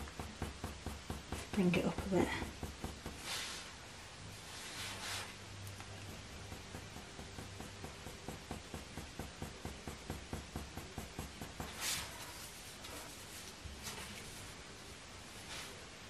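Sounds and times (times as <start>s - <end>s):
pencil scratching on paper: 6.0s - 14.4s.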